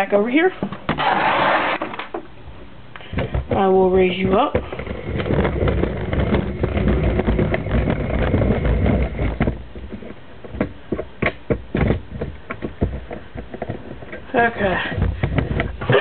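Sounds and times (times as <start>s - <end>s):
camera handling scrape: 1.0s - 2.0s
knocks and clicks: 3.0s - 14.3s.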